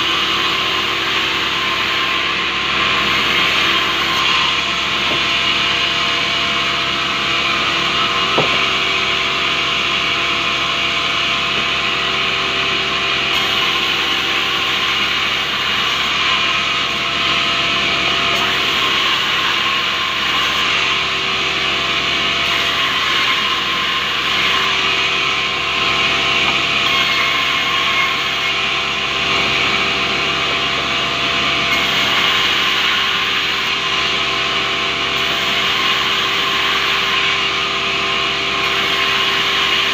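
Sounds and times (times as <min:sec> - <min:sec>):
band saw machine hum: 0:00.0 - 0:39.9
brief knock: 0:08.3 - 0:08.7.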